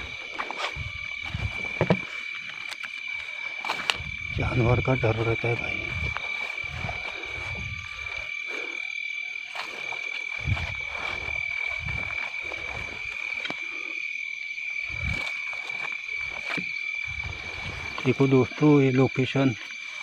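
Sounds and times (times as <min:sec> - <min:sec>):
thuds and rustles of handling: 0:00.0 - 0:02.8
frogs calling: 0:00.0 - 0:20.0.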